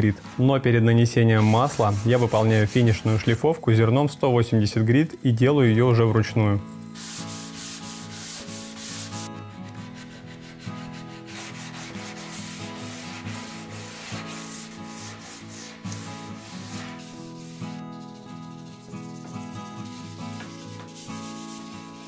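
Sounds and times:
hand sanding wood: 0.0 - 3.4, 7.0 - 22.0.

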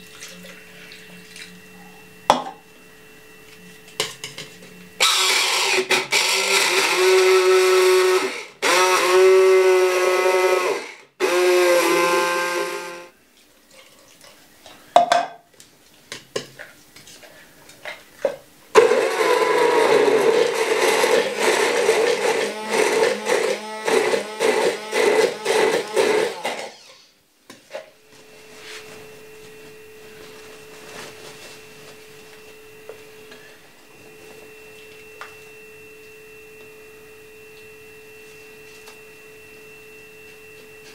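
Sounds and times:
immersion blender running: 4.9 - 13.2, 18.7 - 27.1.

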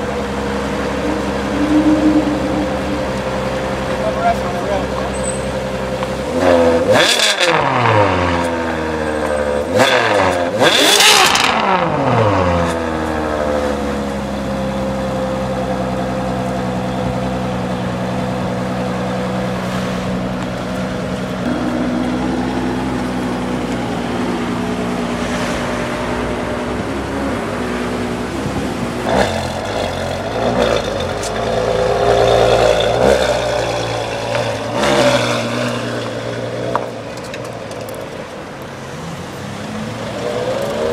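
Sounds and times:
car engine idling: 0.0 - 6.3
car engine revving: 0.0 - 37.3, 38.8 - 40.9.

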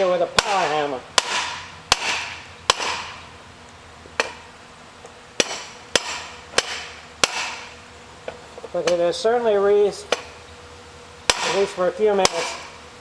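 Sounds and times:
hammer striking steel: 0.0 - 3.2, 4.2 - 4.4, 5.4 - 7.8, 11.3 - 12.8.

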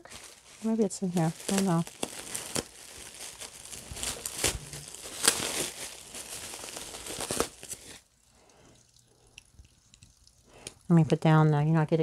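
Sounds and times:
plastic wrap crinkling and tearing: 0.0 - 8.1.

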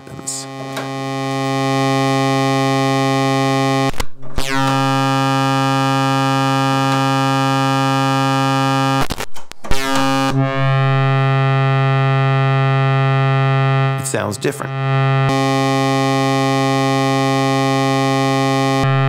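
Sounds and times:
patch cable clicks and pops: 9.0 - 10.3.

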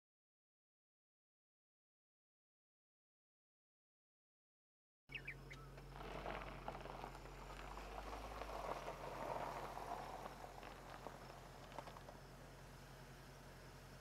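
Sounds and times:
high chirps: 5.1 - 5.8
steady hiss with crackles: 5.8 - 14.0.

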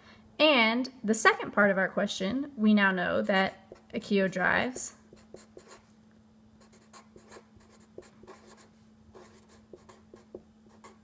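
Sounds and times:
faint steady hum: 0.0 - 11.0
marker scratching on paper: 5.1 - 5.9, 6.6 - 11.0.

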